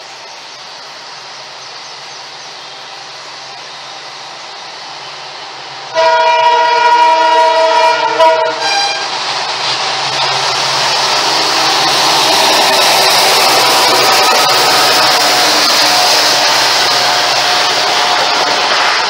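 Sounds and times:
approaching train rushing: 0.0s - 19.0s
train horn blasts: 5.9s - 9.2s, 13.7s - 19.0s.

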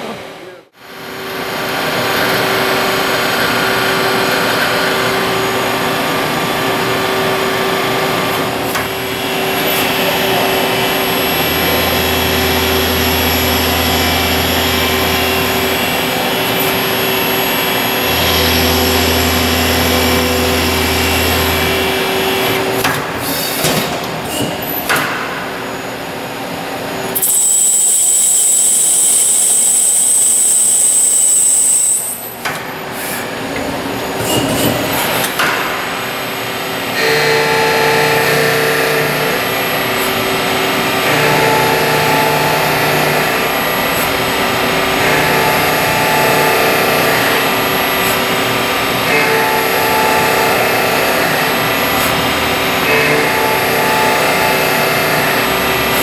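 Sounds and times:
lathe spindle and cutting noise: 0.8s - 22.9s, 35.0s - 56.0s.

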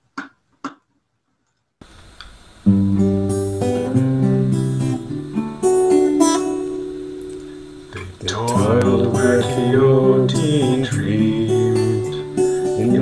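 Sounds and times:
guitar playing ringing chords: 2.6s - 13.0s.

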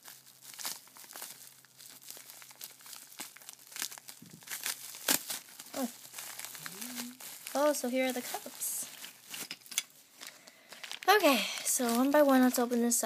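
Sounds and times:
bubble wrap crinkling: 0.0s - 13.0s.

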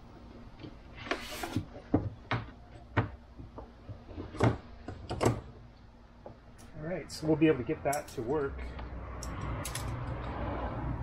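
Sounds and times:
tools knocking and clinking: 9.2s - 10.3s.

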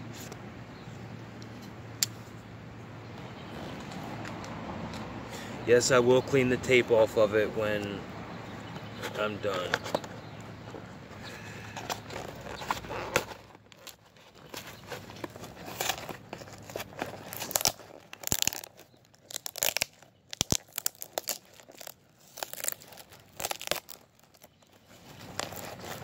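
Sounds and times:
paper packing crinkling: 11.4s - 26.0s
cardboard box tearing: 11.9s - 26.0s.

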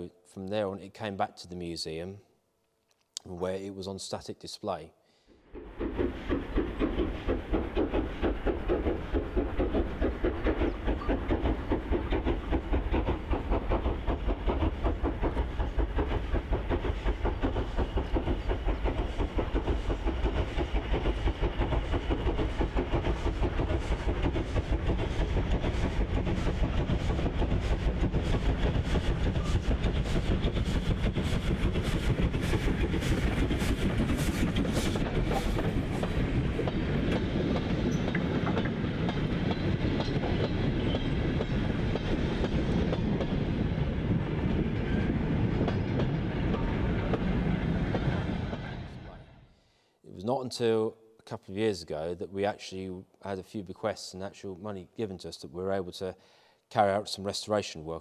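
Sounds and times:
steam locomotive exhaust beats: 5.1s - 49.2s
train rumble: 5.3s - 49.4s.

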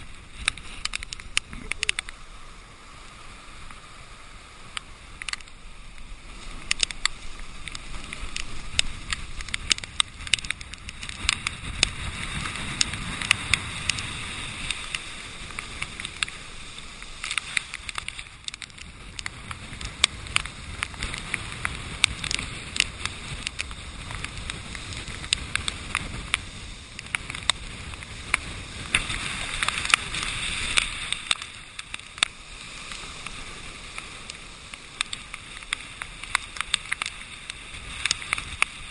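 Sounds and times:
muffled surf crashing on rocks: 0.0s - 38.9s.

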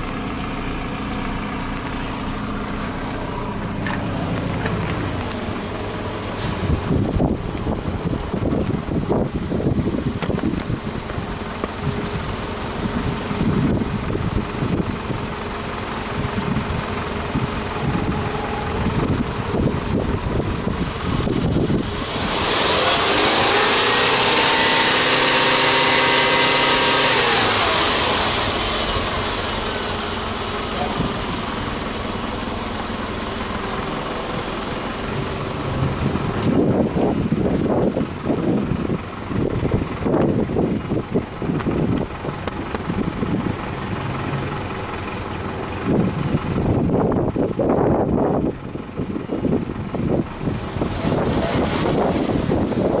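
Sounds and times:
car engine revving: 0.0s - 13.8s, 17.3s - 39.0s, 41.5s - 47.7s, 50.1s - 53.0s
wind buffeting microphone: 2.6s - 27.7s, 33.3s - 53.0s.

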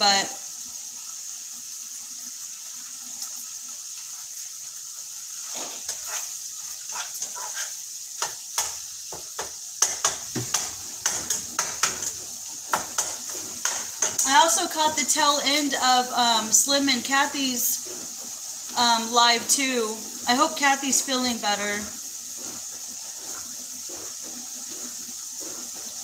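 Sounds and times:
meat sizzling in a pan: 0.0s - 26.0s
utensil scraping and knocking pan: 5.5s - 15.1s, 22.3s - 26.0s.

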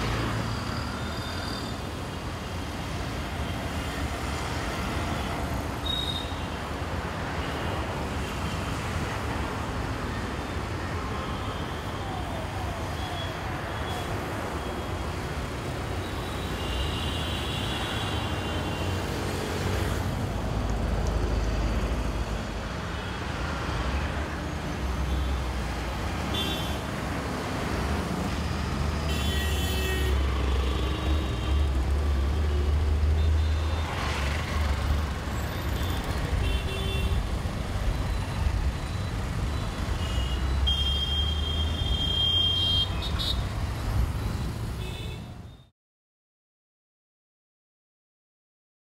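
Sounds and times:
road traffic rumble: 0.0s - 45.6s
vehicle horns tooting: 29.0s - 31.6s, 40.0s - 43.5s.

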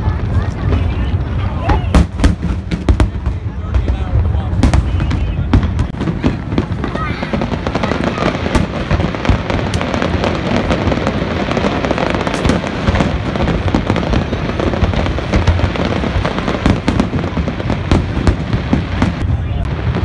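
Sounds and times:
firework cracks and crackling: 0.0s - 20.0s
low rumble of booms: 0.0s - 20.0s.

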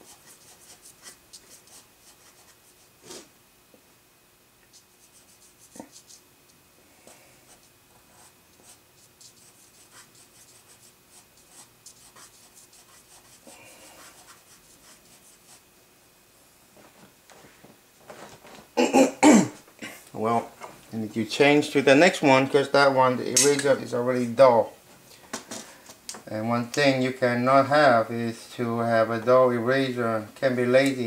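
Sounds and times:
eraser scratching on paper: 0.0s - 3.3s, 4.7s - 6.2s, 7.5s - 15.6s.

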